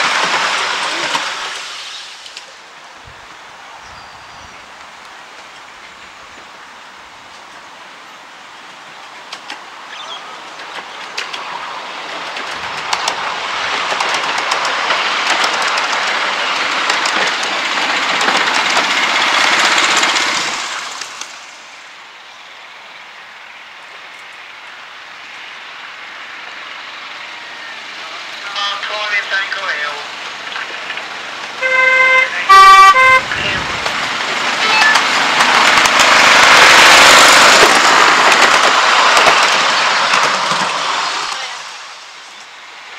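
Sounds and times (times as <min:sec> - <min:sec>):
miniature train wheels rumbling: 0:00.0 - 0:08.0, 0:08.6 - 0:42.9.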